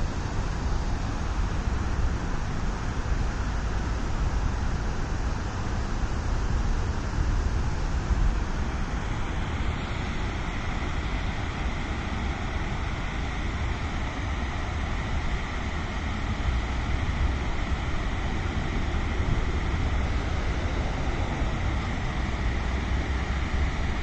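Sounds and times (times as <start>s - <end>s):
river water pouring over weir: 0.0s - 24.0s
wind rumble on microphone: 15.7s - 24.0s.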